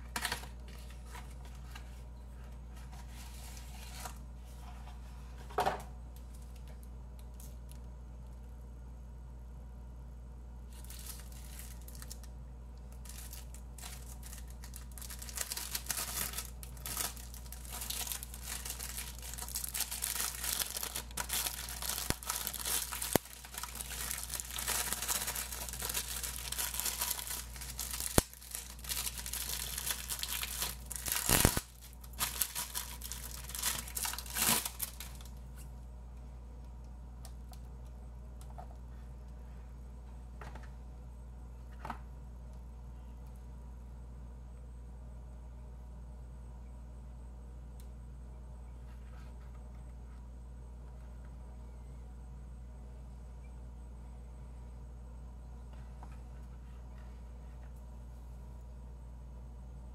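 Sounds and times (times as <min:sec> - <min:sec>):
plastic wrapping crinkling: 0:10.7 - 0:12.3, 0:12.9 - 0:35.6.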